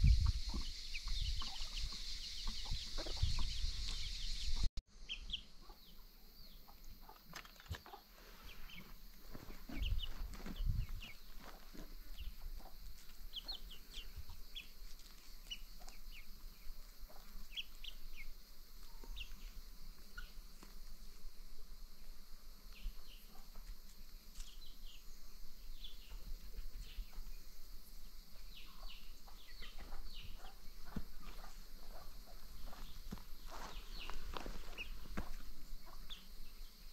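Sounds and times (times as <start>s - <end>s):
chickens chirping and peeping: 0.0s - 19.5s, 28.5s - 36.3s.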